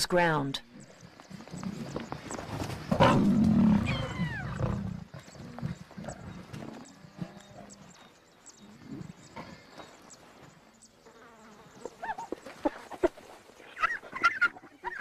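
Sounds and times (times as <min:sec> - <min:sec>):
lions snarling and growling: 0:00.7 - 0:10.0.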